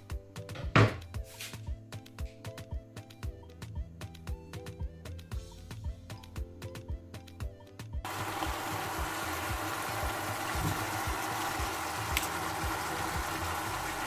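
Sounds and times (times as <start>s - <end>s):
background music with steady beat: 0.0s - 14.0s
food sizzling in a pot: 8.1s - 14.0s.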